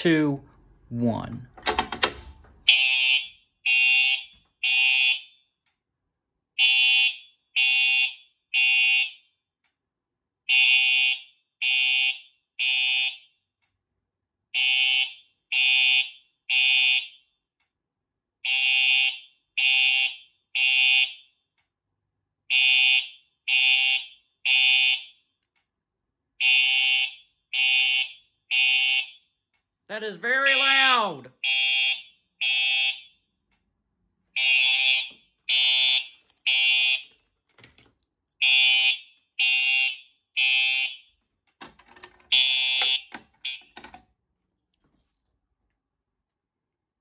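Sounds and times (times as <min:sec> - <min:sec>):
fire alarm horn blasts: 0:02.6 - 0:05.6, 0:06.5 - 0:09.4, 0:10.4 - 0:13.5, 0:14.5 - 0:17.4, 0:18.4 - 0:21.4, 0:22.5 - 0:25.3, 0:26.4 - 0:29.3, 0:30.4 - 0:33.3, 0:34.3 - 0:37.1, 0:38.4 - 0:41.1, 0:42.3 - 0:43.8.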